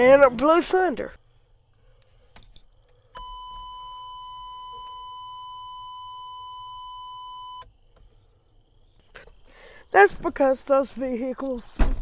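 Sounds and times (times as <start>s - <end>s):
vehicle warning buzzer: 3.2s - 7.7s.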